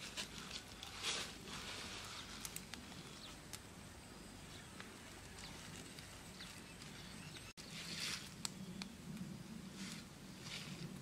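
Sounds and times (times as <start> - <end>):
wood fire crackling and popping: 2.3 - 3.7.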